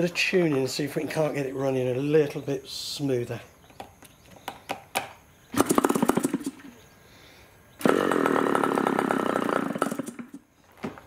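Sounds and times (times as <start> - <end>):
electric starter spinning engine: 5.6 - 6.7, 7.7 - 10.5.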